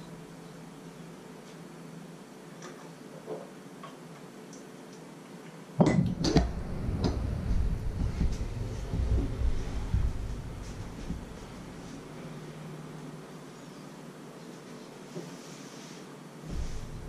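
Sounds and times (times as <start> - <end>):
low rumble: 5.9 - 13.0, 16.5 - 17.0.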